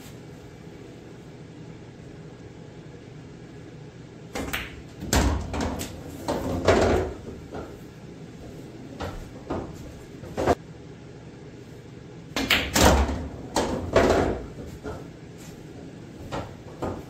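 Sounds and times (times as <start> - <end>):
pool balls clacking: 4.3 - 7.9, 8.9 - 10.6, 12.3 - 17.0.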